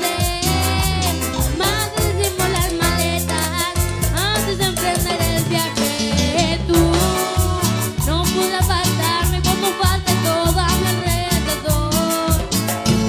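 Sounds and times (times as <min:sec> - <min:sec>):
woman singing into microphone: 0:00.0 - 0:12.6
bass guitar: 0:00.0 - 0:13.0
electric guitars: 0:00.0 - 0:13.0
percussion beat: 0:00.0 - 0:13.0.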